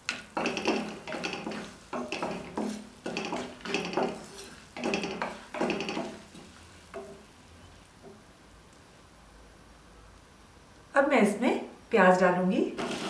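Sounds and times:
wooden spatula scraping spices: 0:00.0 - 0:07.3, 0:12.8 - 0:13.0.

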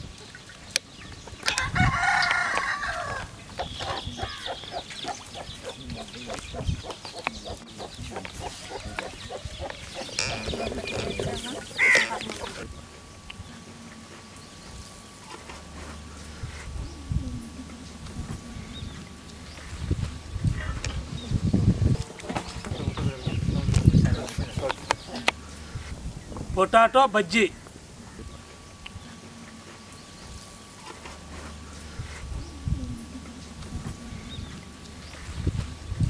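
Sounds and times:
rooster crowing: 0:01.4 - 0:04.8
hens clucking: 0:01.4 - 0:14.2, 0:15.3 - 0:26.1.

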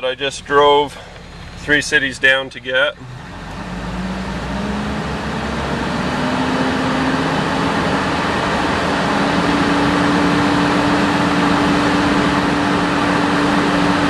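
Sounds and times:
diesel engine revving and droning: 0:00.0 - 0:14.0.

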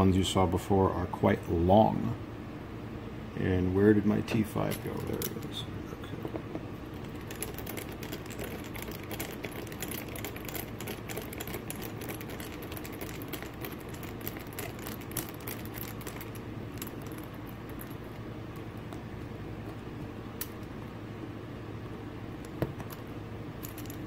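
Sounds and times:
steady low hum: 0:00.0 - 0:24.0
screwdriver clicking and scratching: 0:04.6 - 0:05.5, 0:07.0 - 0:19.0.

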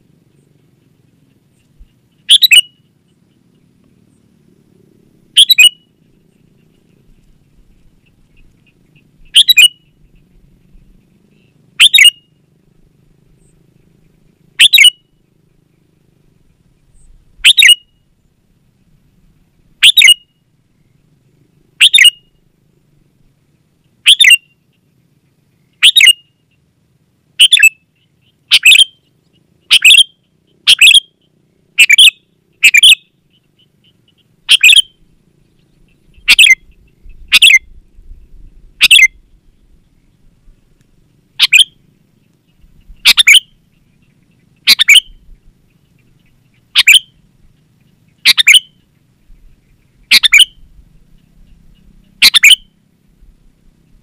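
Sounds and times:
bird chattering calls: 0:00.3 - 0:04.2, 0:05.3 - 0:12.4, 0:13.4 - 0:15.8, 0:16.9 - 0:17.9, 0:19.8 - 0:20.3, 0:21.8 - 0:22.4, 0:23.9 - 0:24.8, 0:25.7 - 0:26.6, 0:27.4 - 0:37.8, 0:38.5 - 0:39.7, 0:41.4 - 0:52.8.

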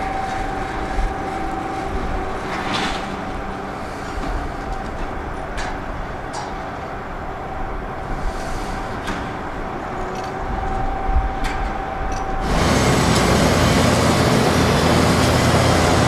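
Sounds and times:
excavator diesel engine running: 0:11.7 - 0:16.0.

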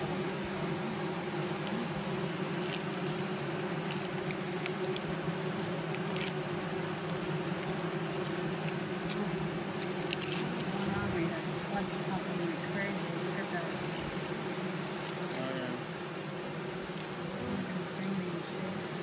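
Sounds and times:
honeybees buzzing: 0:00.0 - 0:19.0.

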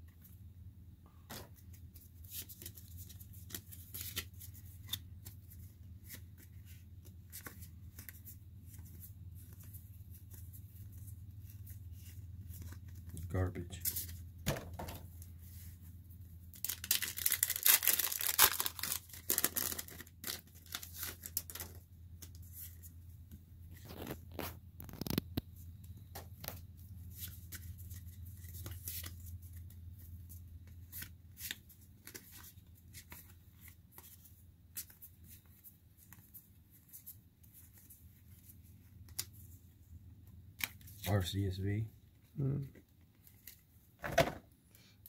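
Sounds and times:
cards clicking and rustling: 0:01.3 - 0:10.4, 0:16.6 - 0:22.8, 0:30.7 - 0:37.1
foil wrapper ripping: 0:16.6 - 0:21.8, 0:23.8 - 0:25.2.

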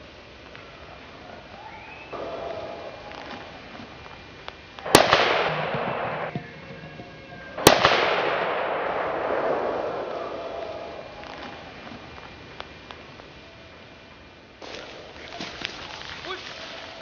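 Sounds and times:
gunshots with rolling echo: 0:02.1 - 0:03.7, 0:04.8 - 0:11.8.

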